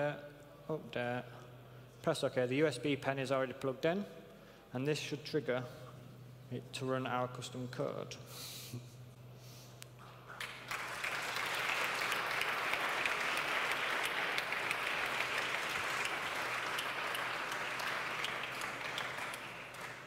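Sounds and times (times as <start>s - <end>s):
audience applauding: 10.3s - 20.0s.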